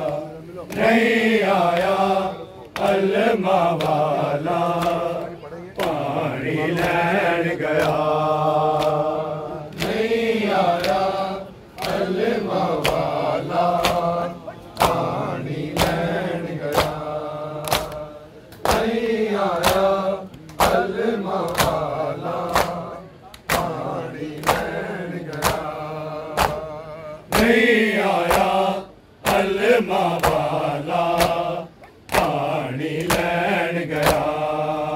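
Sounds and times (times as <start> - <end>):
men chanting in chorus: 0.0 - 34.9
chest-beating slaps: 12.8 - 15.1, 17.6 - 18.9, 19.6 - 23.8, 24.4 - 26.7, 28.2 - 28.6.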